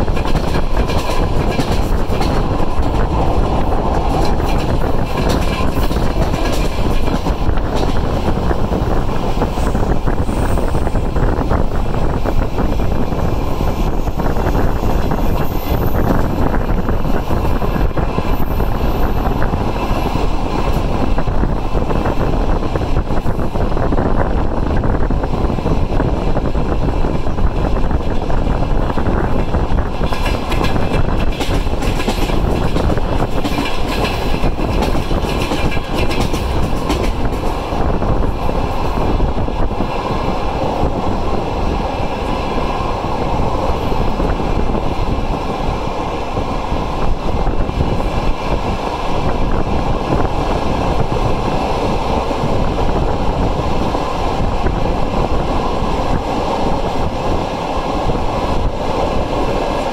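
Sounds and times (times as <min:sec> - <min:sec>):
wheels clicking over rail joints: 0:00.0 - 0:08.6, 0:28.9 - 0:39.2
train wheels rumbling on rails: 0:00.0 - 0:59.9.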